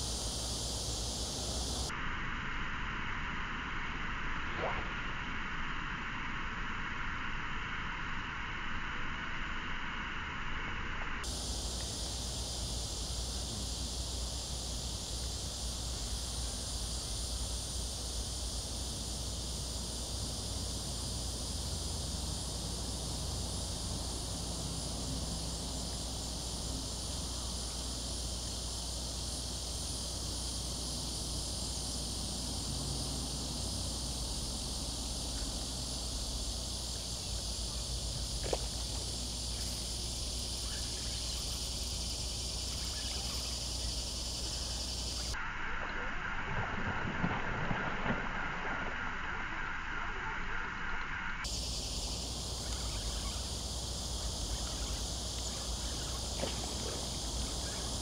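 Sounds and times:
insects trilling: 0.0s - 2.0s, 11.2s - 48.9s, 51.4s - 58.0s.

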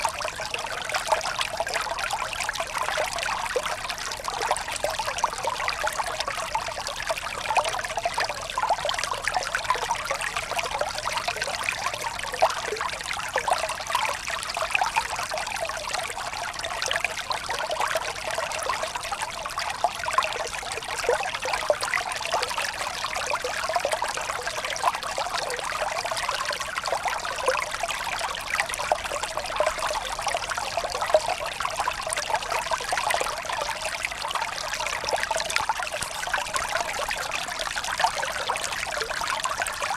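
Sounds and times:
stream rushing over rocks: 32.3s - 39.9s.

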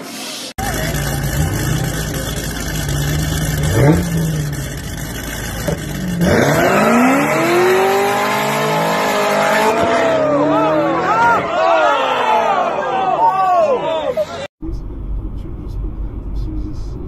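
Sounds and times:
car engines revving: 0.6s - 13.1s.

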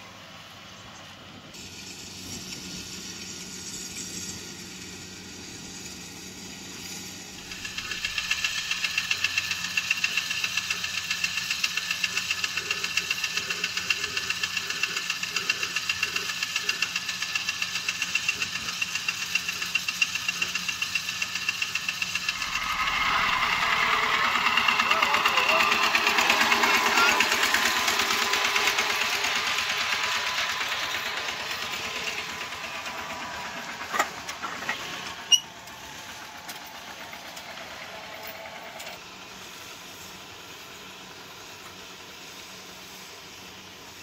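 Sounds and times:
diesel engine idling: 6.3s - 44.0s.

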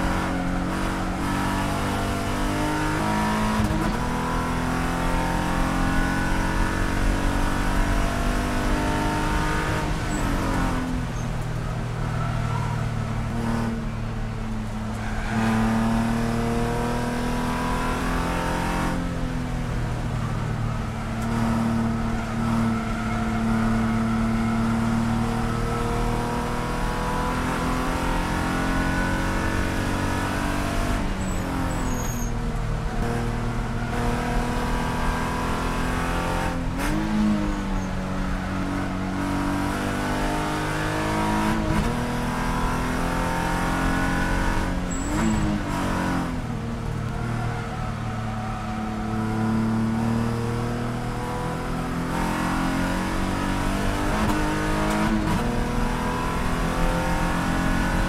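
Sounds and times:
race car engine revving: 20.0s - 58.0s.

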